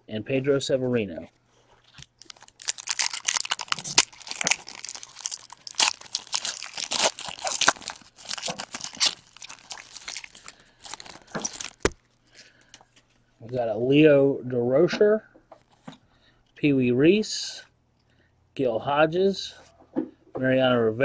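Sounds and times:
foil wrapper crinkling and tearing: 0:01.9 - 0:12.6.

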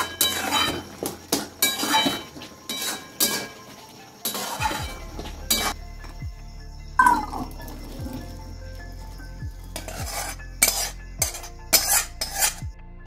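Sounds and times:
spatula scraping metal pot: 0:00.0 - 0:05.8, 0:09.6 - 0:12.7
steel bowl clanking: 0:00.0 - 0:05.8.

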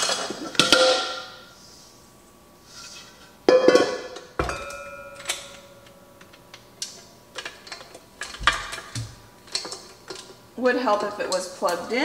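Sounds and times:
metal bowls clanking: 0:00.0 - 0:01.4, 0:03.5 - 0:05.9
bowl ringing: 0:03.5 - 0:06.4.

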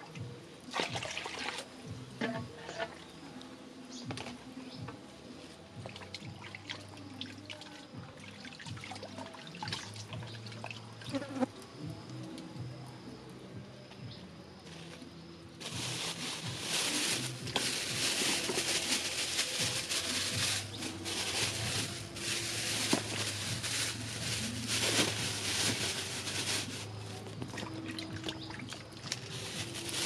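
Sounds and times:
plastic bag crinkling: 0:15.6 - 0:27.0, 0:29.1 - 0:30.0.

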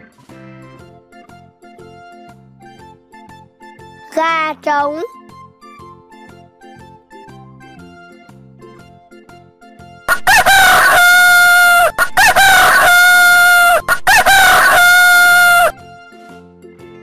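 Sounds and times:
rooster crowing: 0:10.1 - 0:15.8.

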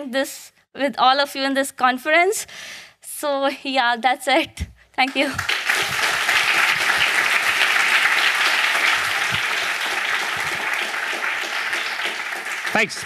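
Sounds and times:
audience applauding: 0:05.1 - 0:13.0.

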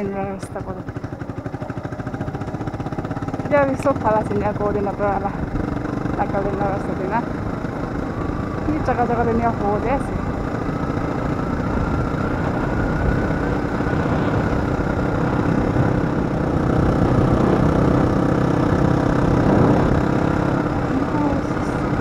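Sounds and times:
motorcycle engine humming: 0:00.0 - 0:22.0
rushing wind noise: 0:10.1 - 0:22.0.

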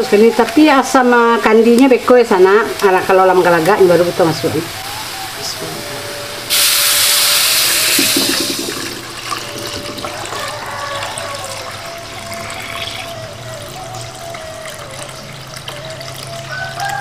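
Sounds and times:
pot simmering: 0:06.2 - 0:17.0
liquid pouring into a pot: 0:07.2 - 0:11.8.

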